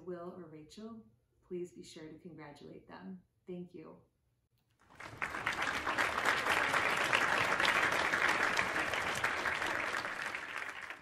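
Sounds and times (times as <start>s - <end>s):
crowd applauding: 4.8s - 11.0s.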